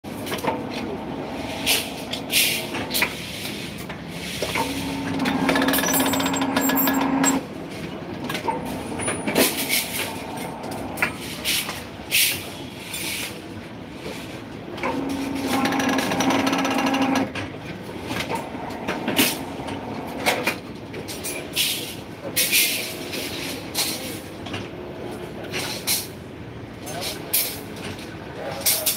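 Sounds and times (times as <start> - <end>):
bending machine motor humming: 0.1 - 12.1, 14.6 - 21.0
steel rebar clanking: 4.2 - 7.5.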